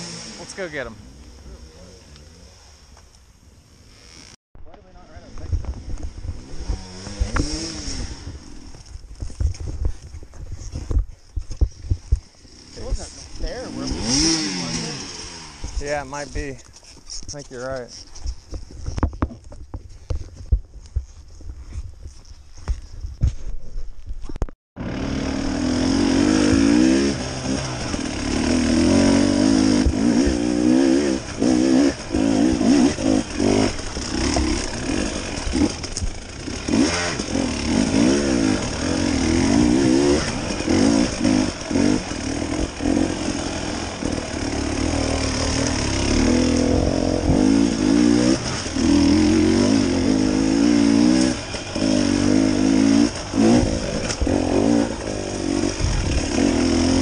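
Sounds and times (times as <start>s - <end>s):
dirt bike engine revving: 0.0s - 2.8s, 3.7s - 4.4s, 5.3s - 8.9s, 12.4s - 16.4s, 24.8s - 57.0s.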